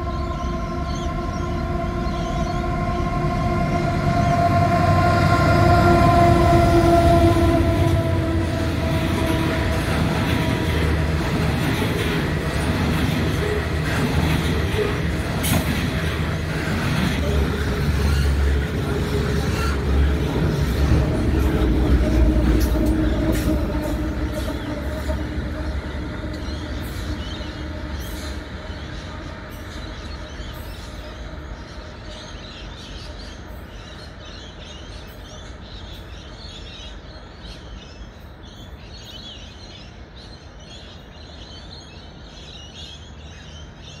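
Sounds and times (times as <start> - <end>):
birds chirping: 0.0 - 44.0
train rolling on rails: 0.0 - 44.0
wheels clattering on rails: 7.8 - 31.1.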